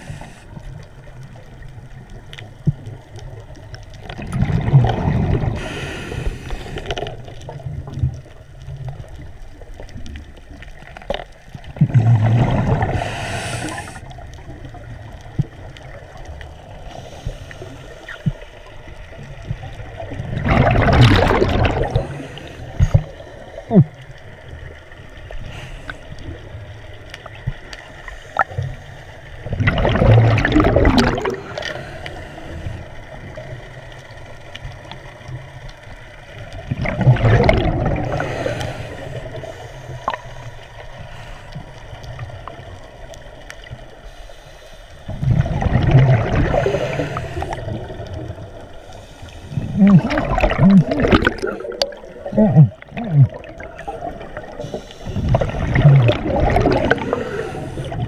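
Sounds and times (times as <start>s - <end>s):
regulator inhale hiss: 0.0s - 0.7s, 5.5s - 7.2s, 12.8s - 14.2s, 16.8s - 18.6s, 21.9s - 23.7s, 25.3s - 26.4s, 31.3s - 33.2s, 38.0s - 42.0s, 43.9s - 45.1s, 46.4s - 47.8s, 48.6s - 49.8s, 53.8s - 55.5s, 56.8s - 58.0s
exhaled bubbles rumbling: 0.0s - 44.0s, 45.0s - 58.0s.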